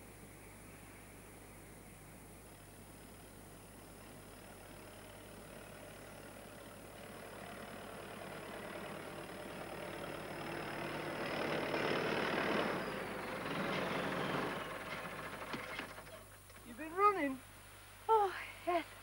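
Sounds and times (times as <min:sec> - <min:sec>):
tractor engine approaching: 0:03.0 - 0:19.0.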